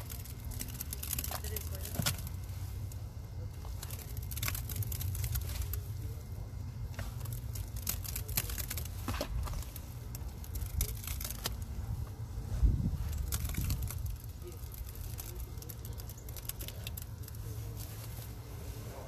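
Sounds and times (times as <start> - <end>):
steady low rumble: 0.0 - 19.0
wet paste crackling and crunching: 0.0 - 19.0.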